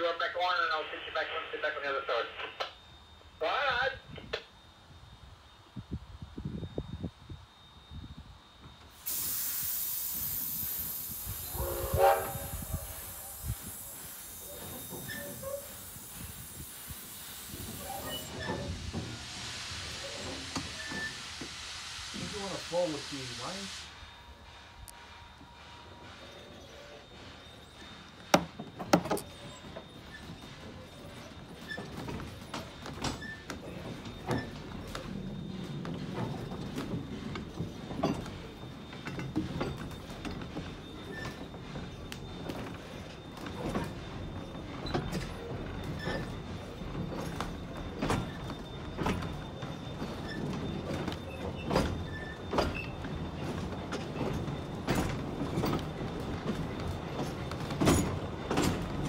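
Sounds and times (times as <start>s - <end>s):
railway carriage rolling: 0.0s - 59.0s
knocks and creaks of couplings: 50.0s - 59.0s.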